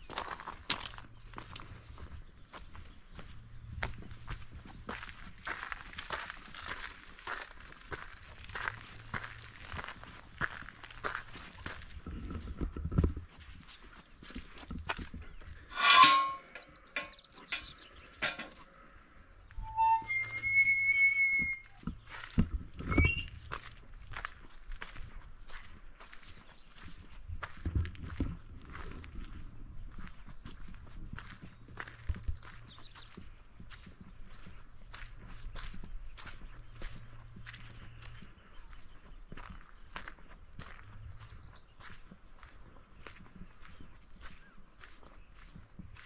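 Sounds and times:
footsteps on gravel: 0.0 - 19.0, 20.3 - 46.0
harsh creak: 19.5 - 21.9, 22.8 - 23.5.

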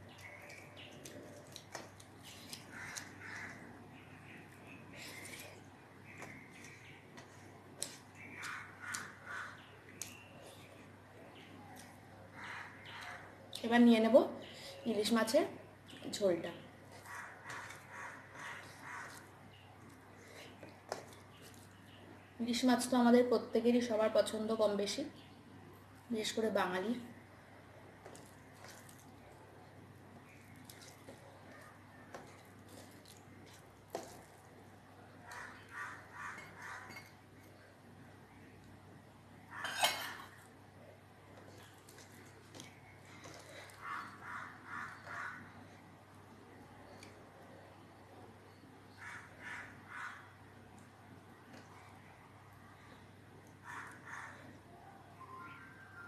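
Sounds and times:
fingers squishing rice and curry: 0.0 - 13.7, 15.9 - 22.2, 27.4 - 54.6
chewing: 0.1 - 3.6, 28.0 - 29.5, 30.2 - 37.6, 41.3 - 45.4
fingers mixing rice on steel plate: 16.9 - 21.9, 28.0 - 29.4, 30.2 - 37.5.

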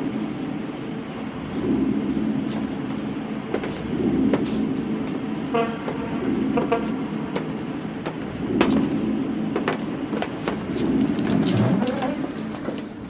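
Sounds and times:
street and vehicle noise: 0.0 - 13.0
short horn toots: 5.5 - 7.0.

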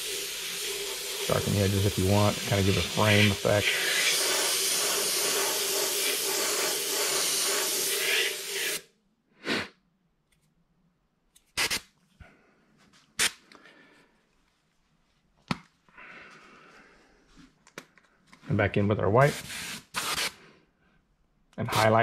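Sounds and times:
airbrush spraying hiss: 0.0 - 8.9.

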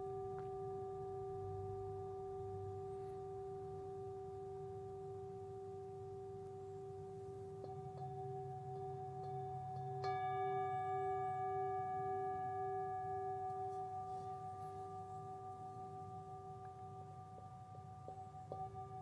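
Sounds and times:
meditation music held tones: 0.0 - 19.0
bell-like tone ringing: 7.6 - 19.0.

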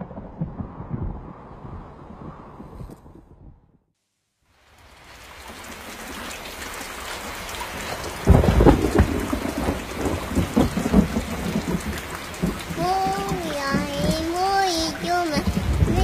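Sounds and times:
thunder rumble: 0.0 - 3.9, 7.8 - 16.0
heavy rain: 4.5 - 16.0.

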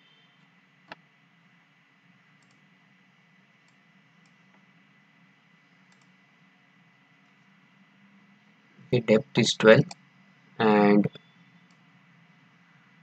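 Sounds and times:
mouse and keyboard clicks: 2.4 - 2.6.

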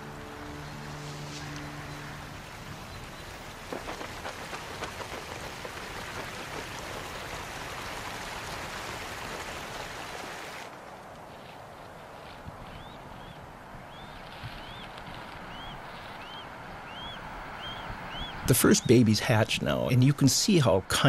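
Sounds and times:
rushing splashing water: 0.0 - 10.8
sharp little splashes: 3.2 - 10.7.

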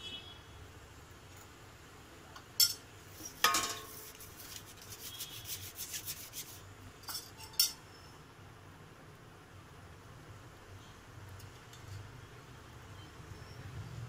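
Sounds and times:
metal plate clinking on pot: 2.6 - 4.0, 7.1 - 7.8
light metal scraping: 2.6 - 7.8.

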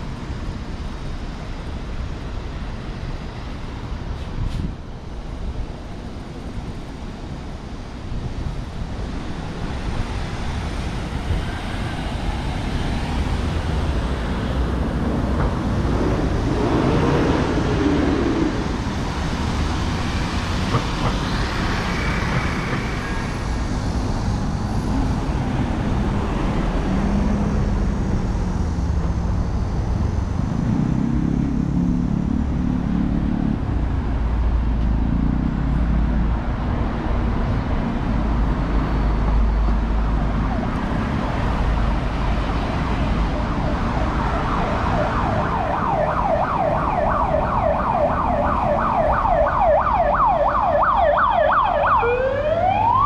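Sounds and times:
traffic rumble: 0.0 - 53.0
engine running close by: 6.0 - 46.4
cars passing: 8.3 - 53.0.

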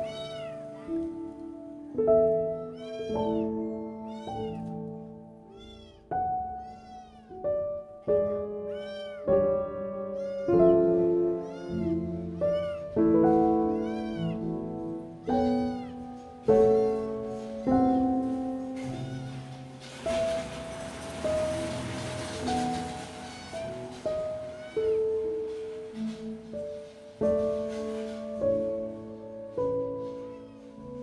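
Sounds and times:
background piano music: 0.0 - 31.0
kitten mewing: 2.7 - 4.6, 5.5 - 7.4, 8.1 - 9.3.

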